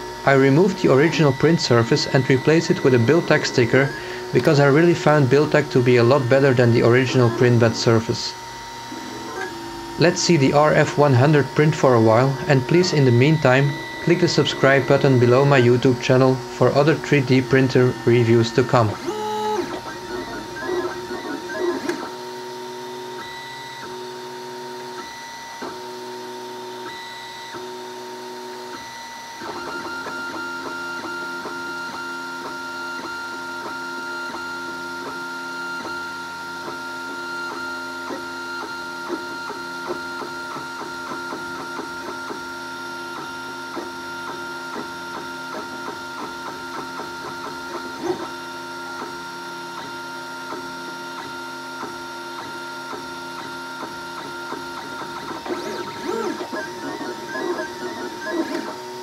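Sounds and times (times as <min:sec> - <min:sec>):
fan tone: 0:00.0 - 0:22.6
stepper motors whining: 0:00.0 - 0:25.9, 0:51.2 - 0:59.0.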